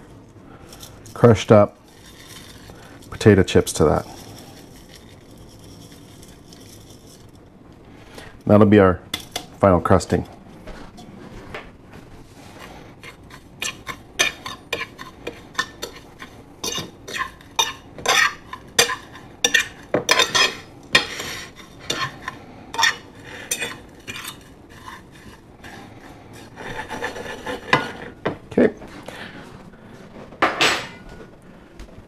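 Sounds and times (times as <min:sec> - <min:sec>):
fork scraping crumbs on plate: 0:12.4 - 0:28.2.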